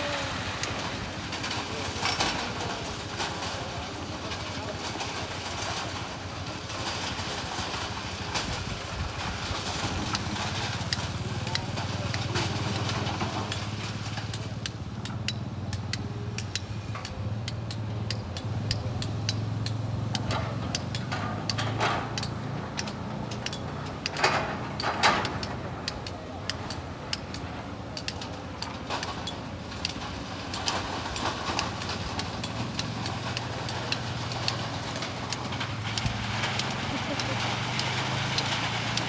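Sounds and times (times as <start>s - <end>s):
excavator diesel engine drone: 0.0s - 39.0s
sharp clicks and knocks: 9.7s - 39.0s
burst of clatter: 28.7s - 39.0s.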